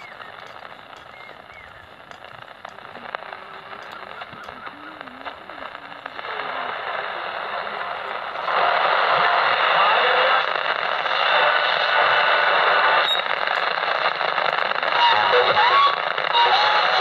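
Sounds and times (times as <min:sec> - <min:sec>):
faint wavering whistles: 0:00.0 - 0:06.2, 0:12.9 - 0:13.4
radio static hiss: 0:00.0 - 0:17.0.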